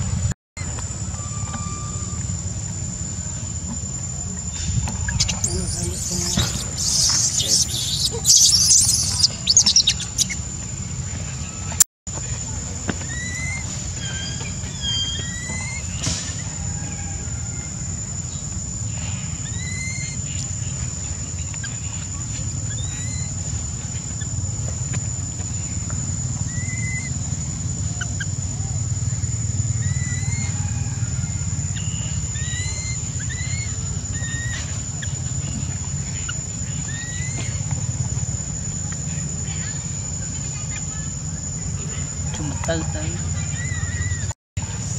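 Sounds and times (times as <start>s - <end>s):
low outdoor rumble: 0.0s - 44.9s
high insect drone: 0.7s - 11.4s
infant monkey whistle-like cries: 5.1s - 10.4s, 19.4s - 20.2s, 26.5s - 27.1s, 29.7s - 35.2s
short rising chirps: 5.2s - 10.4s.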